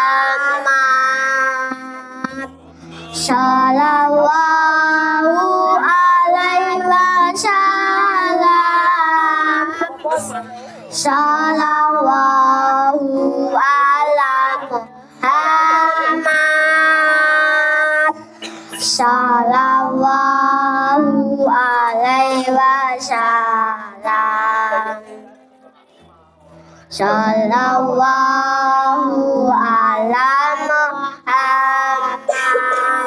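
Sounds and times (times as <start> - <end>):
child singing devotional song: 0.0 - 25.3, 26.8 - 33.0.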